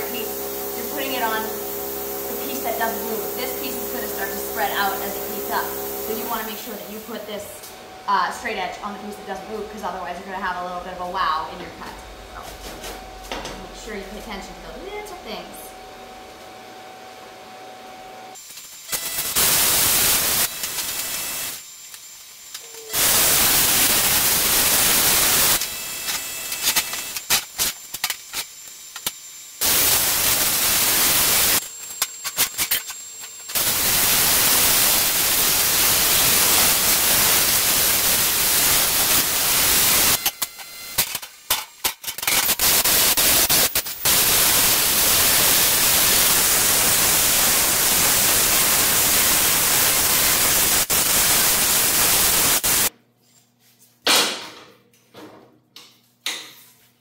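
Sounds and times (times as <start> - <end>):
plasma cutter hissing: 0.0 - 7.5, 18.4 - 40.3, 42.2 - 52.9.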